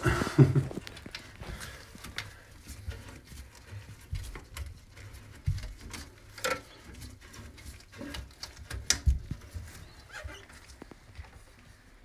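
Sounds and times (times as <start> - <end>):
clunks and clicks of plumbing work: 0.0 - 11.4.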